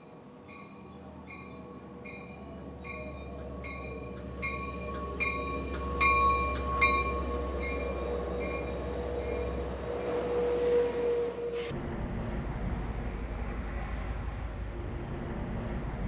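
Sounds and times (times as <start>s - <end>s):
train engine rumble: 0.0s - 16.0s
bell ringing: 0.5s - 11.6s
high squeal: 0.5s - 12.0s.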